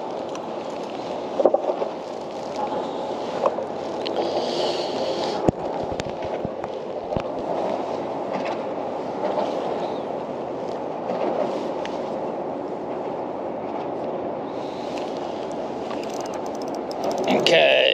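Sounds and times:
sharp clicks and knocks: 15.9s - 17.6s.

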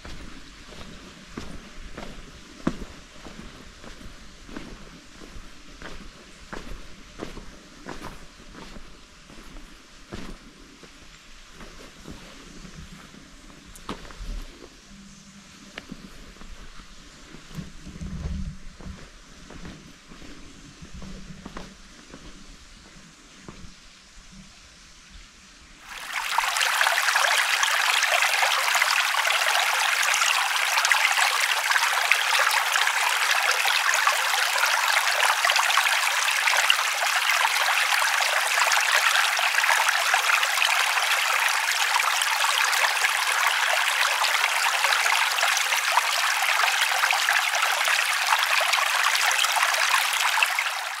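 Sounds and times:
mountain stream rushing: 25.8s - 51.0s.

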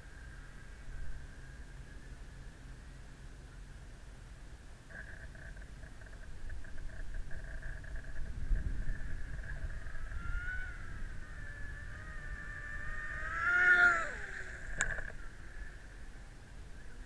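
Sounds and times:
rc speedboat motor whine: 4.8s - 17.0s
passing speedboat whine: 8.8s - 17.0s.

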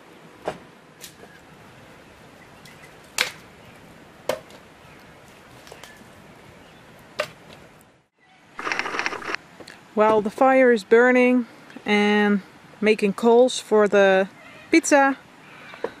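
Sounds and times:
low steady hiss: 0.0s - 16.0s
campfire crackling: 1.0s - 8.0s, 8.6s - 9.7s
sharp snaps and pops: 2.6s - 3.5s.

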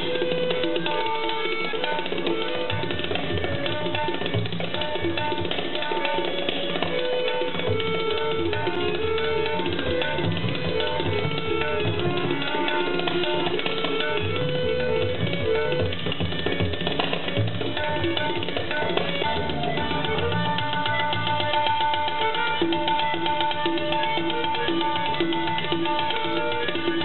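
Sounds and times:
harmonium melody: 0.0s - 27.0s
tabla playing fast strokes: 0.0s - 27.0s.

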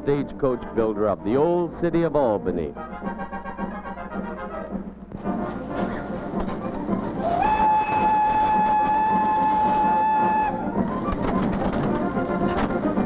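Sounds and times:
train running noise: 0.0s - 13.0s
steam locomotive whistle: 7.0s - 11.5s.

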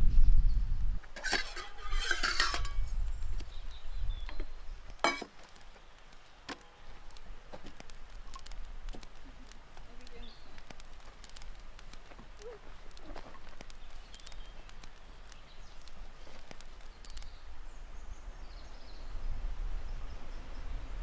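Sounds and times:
small hard objects clicking: 1.2s - 17.4s.

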